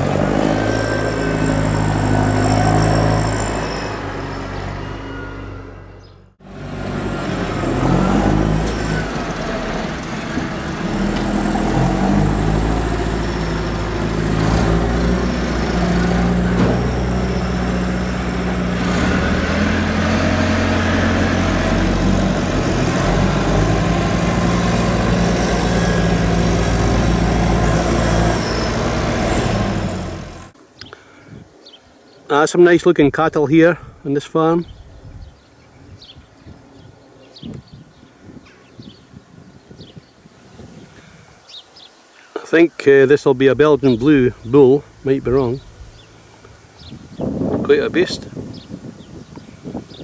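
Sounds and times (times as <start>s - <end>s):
tractor engines revving: 0.0s - 30.6s.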